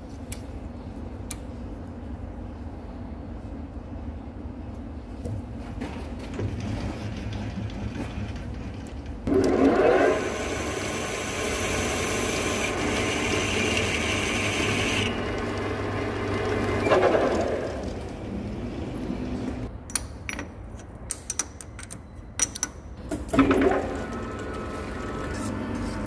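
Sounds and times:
lathe tool scraping metal: 9.3s - 18.1s
lathe humming: 9.3s - 19.7s.

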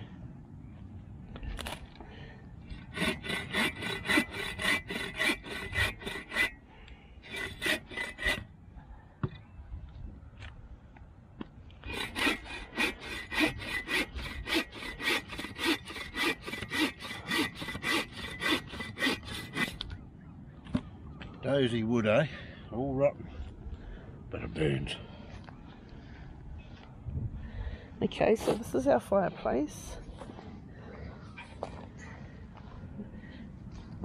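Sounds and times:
hand saw cutting a log: 2.7s - 6.6s, 7.2s - 8.5s, 11.8s - 19.8s.

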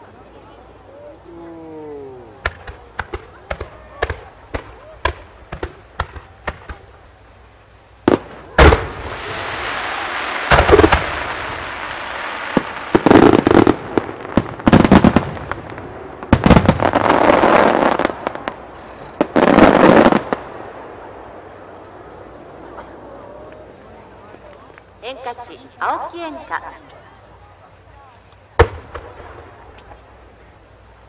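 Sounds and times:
fireworks crackling hiss: 2.2s - 22.5s
fireworks popping and booming: 2.4s - 7.0s, 8.0s - 21.2s, 28.5s - 30.1s.

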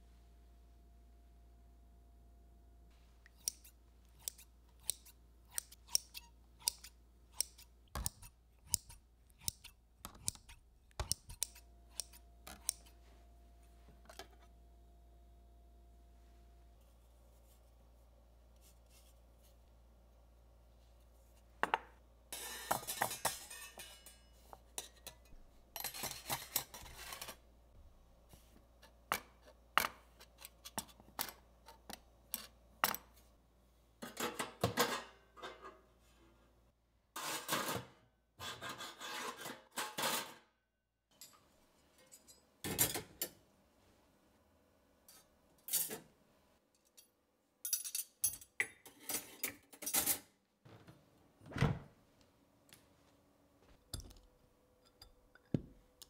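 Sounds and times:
metal utensils clinking in holder: 22.4s - 27.4s.

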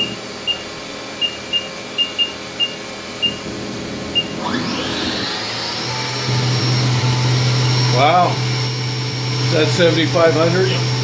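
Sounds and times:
short electronic beeps: 0.0s - 3.4s
spindle whine spinning up: 3.2s - 11.0s.

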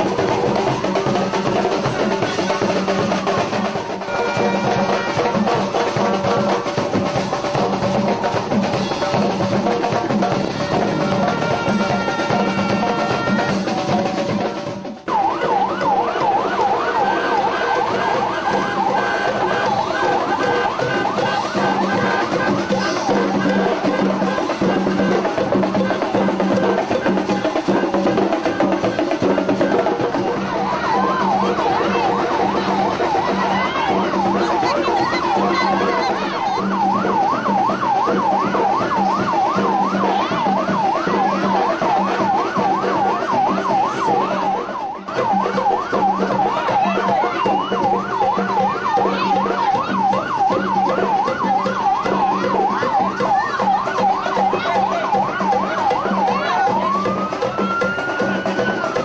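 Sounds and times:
siren yelping: 0.0s - 59.0s
steady held siren tones: 15.1s - 59.0s.

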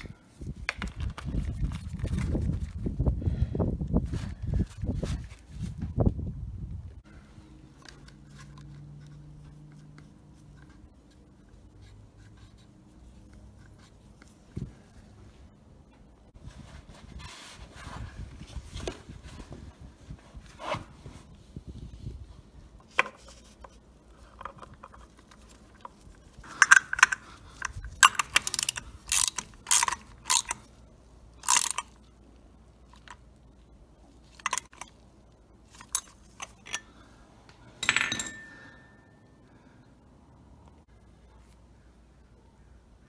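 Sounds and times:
metal tool clicks and clinks: 26.5s - 30.6s, 31.4s - 32.0s, 34.4s - 34.9s, 35.8s - 36.9s, 37.8s - 39.0s.

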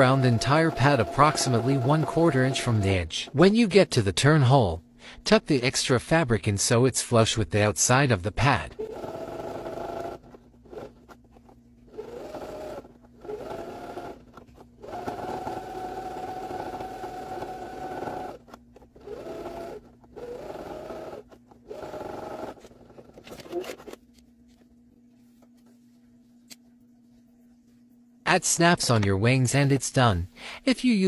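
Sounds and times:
sewing machine motor whining: 0.0s - 3.3s, 8.8s - 11.2s, 11.9s - 23.9s.

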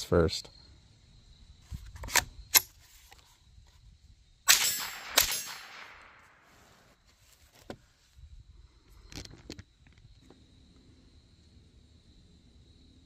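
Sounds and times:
rifle shots with echo: 4.5s - 6.4s.

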